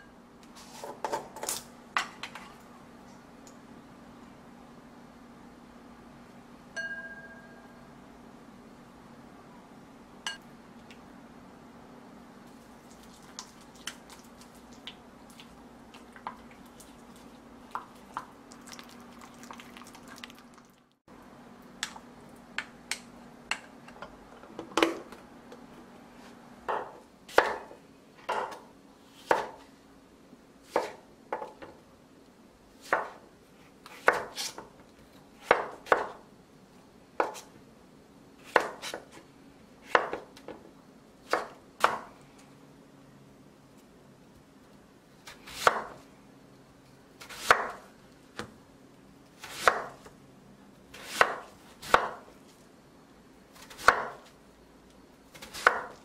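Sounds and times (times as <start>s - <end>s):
knife chopping on a wooden board: 26.7s - 27.7s, 28.3s - 28.6s, 29.2s - 29.6s, 30.7s - 31.6s, 32.8s - 33.2s, 33.9s - 34.6s, 35.4s - 36.2s, 37.2s - 37.5s, 38.4s - 39.2s, 39.9s - 40.3s, 45.5s - 46.0s, 47.2s - 47.8s, 49.4s - 50.0s, 50.9s - 52.2s, 53.6s - 54.3s, 55.4s - 56.0s.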